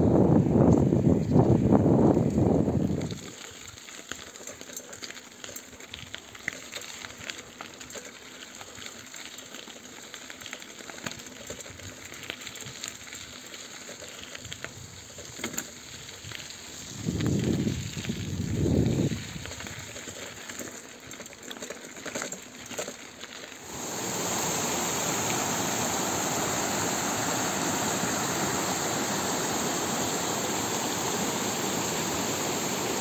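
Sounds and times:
wind buffeting microphone: 0:00.0 - 0:03.2, 0:17.0 - 0:19.5
bicycle tyres rolling on gravel: 0:00.0 - 0:33.0.

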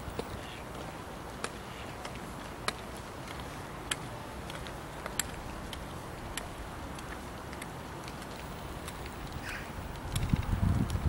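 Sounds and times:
light sharp ticks: 0:00.0 - 0:11.0
wind on microphone: 0:08.4 - 0:11.0.

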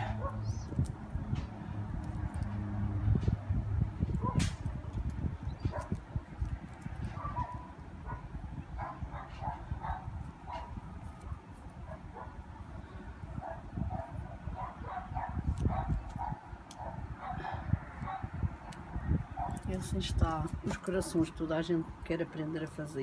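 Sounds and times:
low rumble on microphone: 0:00.0 - 0:20.7
dog yapping: 0:07.2 - 0:08.2.

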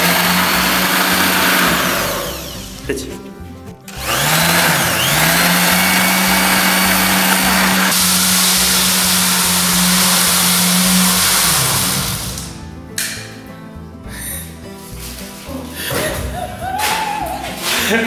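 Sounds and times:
electric sander motor humming: 0:00.0 - 0:02.8, 0:03.9 - 0:12.6
sander winding down: 0:00.0 - 0:02.8, 0:03.9 - 0:12.6.

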